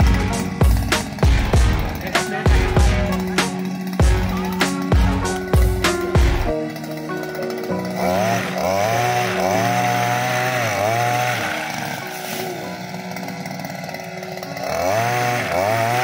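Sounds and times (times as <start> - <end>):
small two-stroke engine revving: 0.0 - 16.0.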